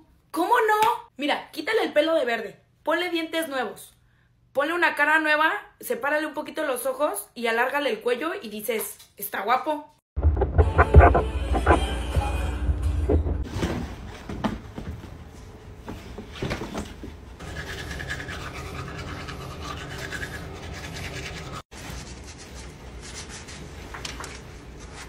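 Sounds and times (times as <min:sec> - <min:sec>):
toothbrush scrubbing teeth: 0:17.4 - 0:21.6.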